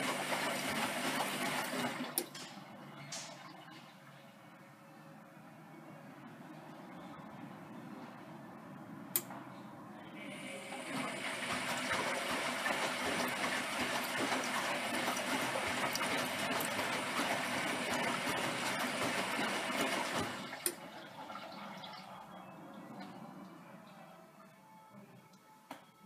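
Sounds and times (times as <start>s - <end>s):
water splashing in drum: 10.9s - 22.1s.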